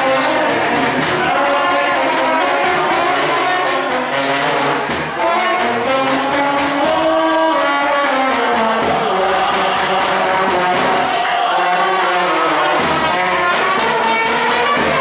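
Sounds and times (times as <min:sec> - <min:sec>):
brass band playing: 0:00.0 - 0:15.0.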